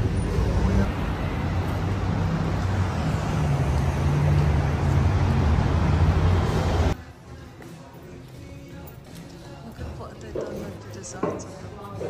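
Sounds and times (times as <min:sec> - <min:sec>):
road traffic noise: 0:00.0 - 0:08.4.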